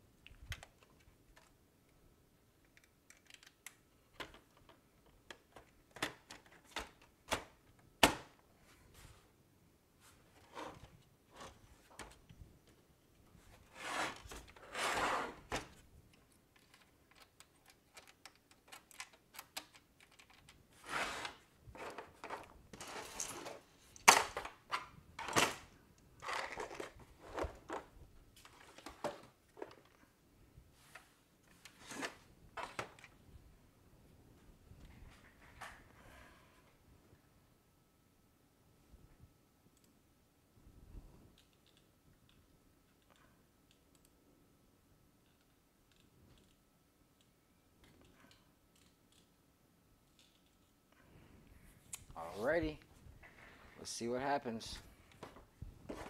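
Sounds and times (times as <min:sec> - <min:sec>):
plastic and metal parts clicking: 0:02.6 - 0:07.4, 0:15.7 - 0:20.6, 0:50.0 - 0:50.8
rustling scrapes: 0:13.4 - 0:15.5, 0:20.8 - 0:22.2.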